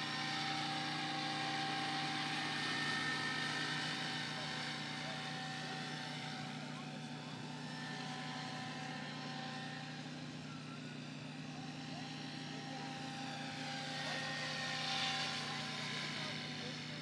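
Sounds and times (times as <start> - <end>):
rc helicopter motor and rotor whine: 0.0 - 17.0.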